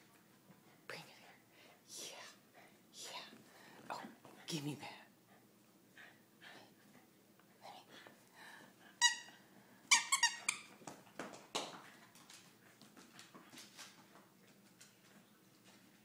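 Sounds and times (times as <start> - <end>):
dog toy squeaking: 9.0 - 9.3, 9.9 - 10.7.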